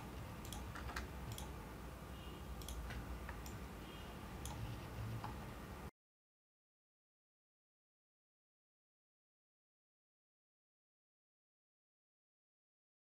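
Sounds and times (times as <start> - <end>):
low room hum: 0.0 - 5.9
computer mouse clicks: 0.4 - 1.6, 2.6 - 3.7, 4.4 - 5.5.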